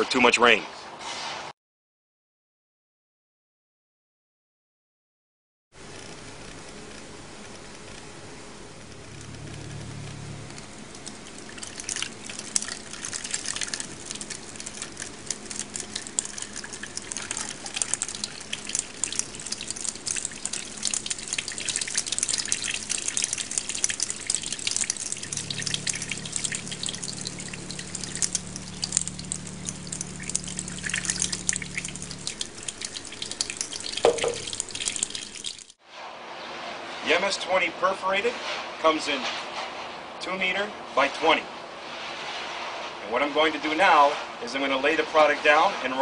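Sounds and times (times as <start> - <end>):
steady low hum: 5.8 - 35.5
water pouring onto drainage mat: 10.4 - 35.8.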